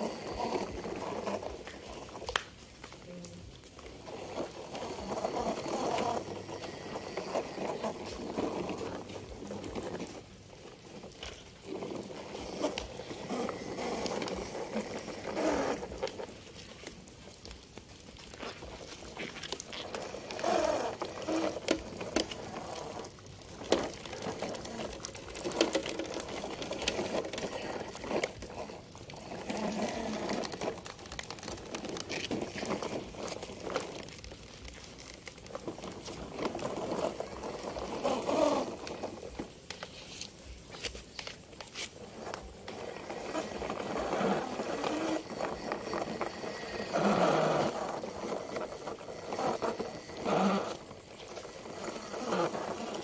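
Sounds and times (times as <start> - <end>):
toy truck wheels scraping pavement: 0.0 - 53.0.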